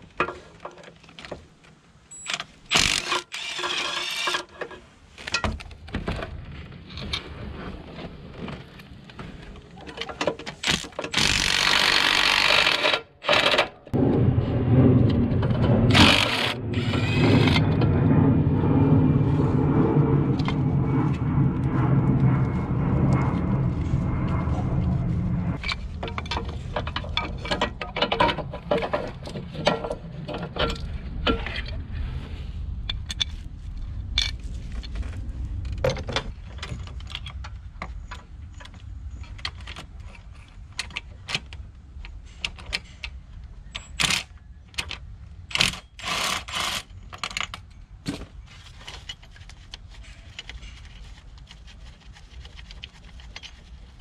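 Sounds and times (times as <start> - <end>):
low rumble: 13.9 - 40.5.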